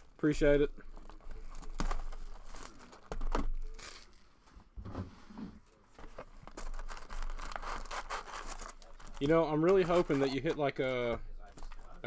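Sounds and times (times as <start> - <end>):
plastic shrink wrap tearing: 0.8 - 4.3, 6.3 - 10.6.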